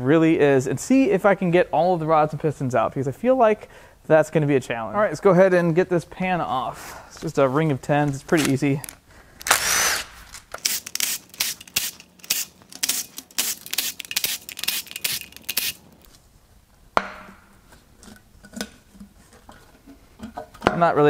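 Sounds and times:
cordless power tool bursts: 9.4 - 15.8.

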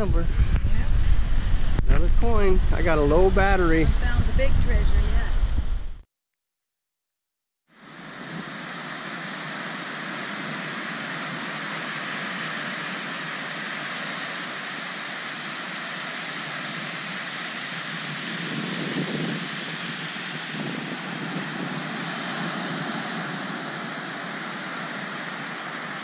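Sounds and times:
ocean surf breaking on beach: 7.8 - 26.0.

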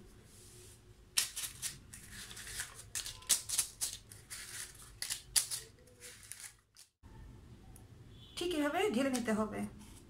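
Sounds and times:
paper cupcake liners crinkling: 1.2 - 7.0.

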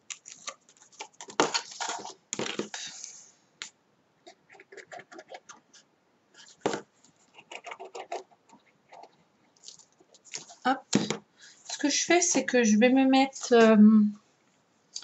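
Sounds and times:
paper rustling: 0.1 - 3.2, 9.6 - 11.9.

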